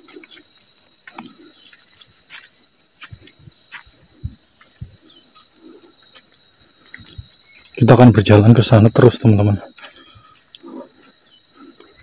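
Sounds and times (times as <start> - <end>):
footsteps on dirt path: 0.0 - 7.4
insects droning: 0.0 - 12.0.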